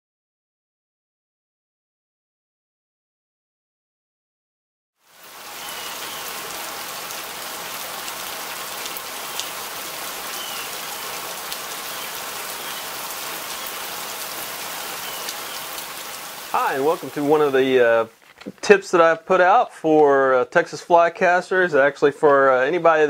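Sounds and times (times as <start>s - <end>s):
rain on roof and gutter: 5.0s - 21.4s.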